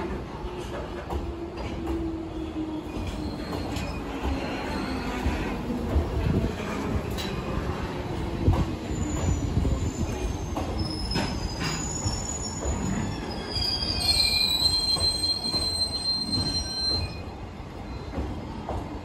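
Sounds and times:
train wheels rumbling: 0.0 - 19.0
metallic wheel squeal: 8.9 - 17.3.

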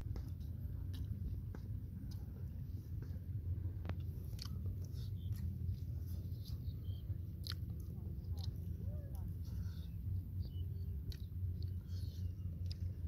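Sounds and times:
steady low rumble: 0.0 - 13.0
person chewing food: 0.1 - 13.0
wet mouth clicks: 4.0 - 5.5, 7.4 - 8.7, 11.0 - 12.9.

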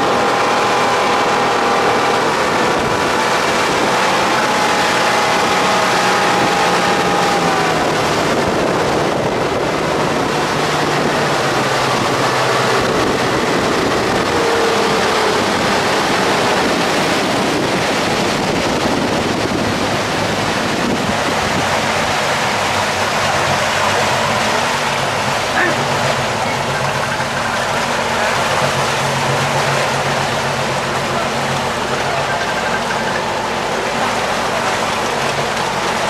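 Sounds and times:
boat engine hum: 0.0 - 36.0
water rushing along hull: 0.0 - 36.0
wind buffeting microphone: 0.0 - 36.0.

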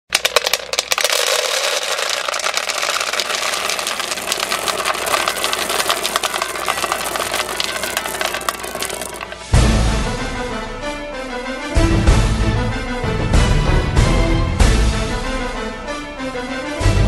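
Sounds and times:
dog kibble poured into bowl: 0.1 - 9.4.

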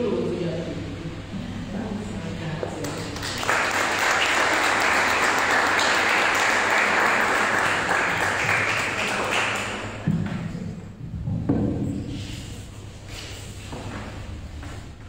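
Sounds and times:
audience applauding: 2.9 - 10.1.

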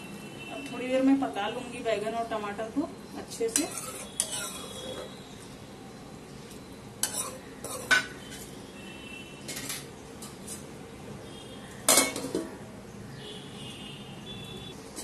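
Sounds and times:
metal spoon scraping pan: 3.4 - 5.2, 7.0 - 8.5, 9.4 - 10.7.

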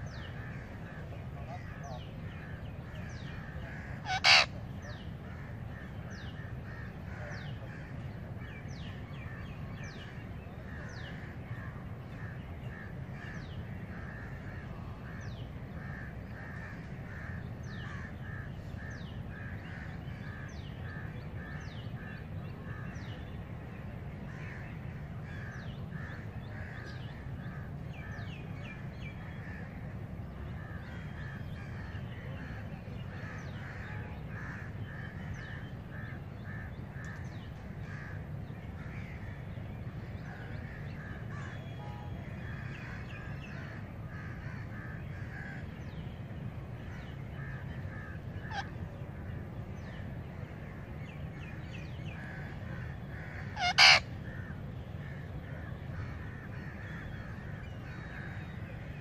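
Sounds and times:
low steady rumble: 0.0 - 59.0
wild birds chirping: 0.0 - 59.0
parakeet screech: 4.0 - 4.5, 53.6 - 54.0.

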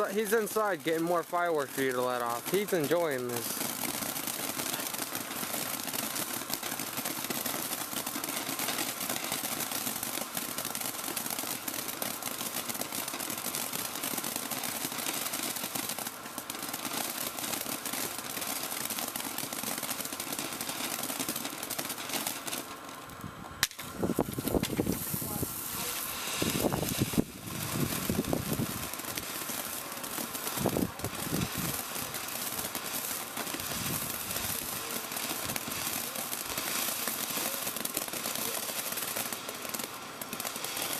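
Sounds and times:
sharp crack: 0.0 - 22.7, 23.6 - 40.9
firework fountain crackling hiss: 0.0 - 40.9.

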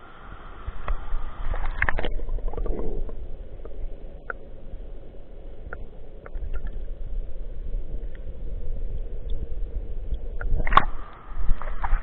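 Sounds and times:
muffled underwater river current: 0.0 - 12.0
faint clicks: 8.0 - 8.3.

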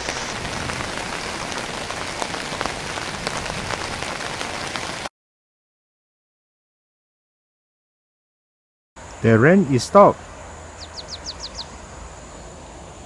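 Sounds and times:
rain falling on a surface: 0.0 - 5.1.

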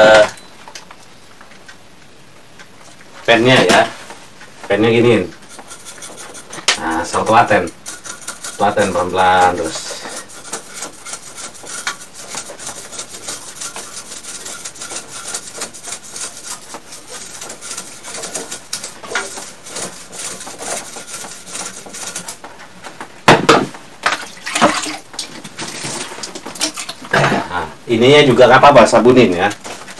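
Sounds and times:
scratchy hand scrubbing: 4.7 - 22.4.

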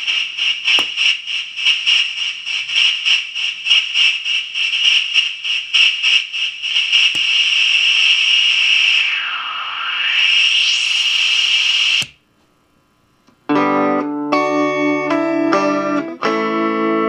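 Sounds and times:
distorted pulsing hiss: 0.0 - 12.2.

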